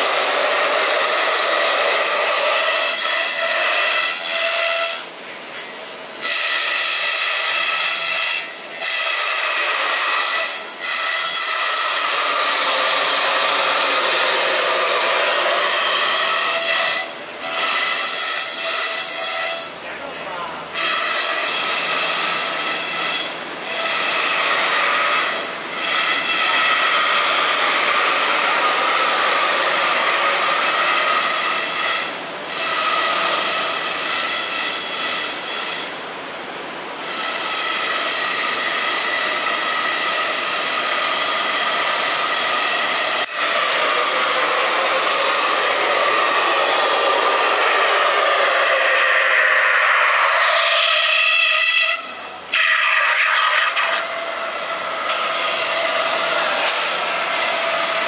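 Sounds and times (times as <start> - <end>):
cnc spindle whine: 37.0 - 58.0.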